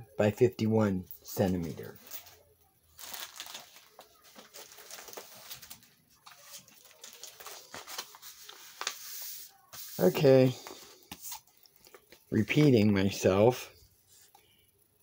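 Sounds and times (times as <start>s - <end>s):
plastic packaging crinkling: 1.5s - 10.1s.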